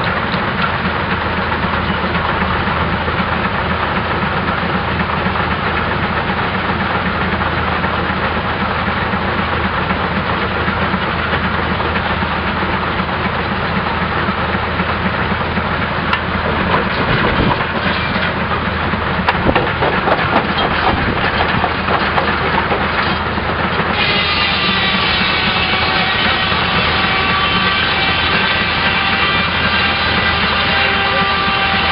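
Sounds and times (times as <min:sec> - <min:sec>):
rock crusher clattering: 0:16.0 - 0:24.1
stone cracking: 0:16.2 - 0:18.5, 0:19.2 - 0:23.2.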